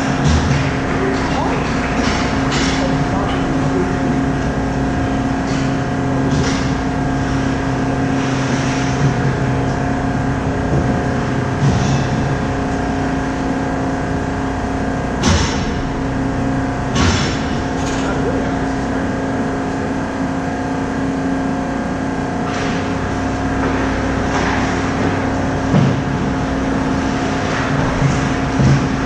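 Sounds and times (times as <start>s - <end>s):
mechanical hum: 0.0s - 29.0s.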